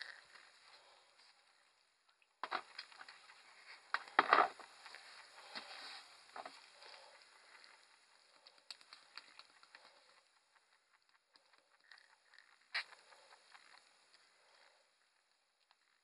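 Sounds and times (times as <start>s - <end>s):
rabbit crunching greens: 2.5s - 14.8s.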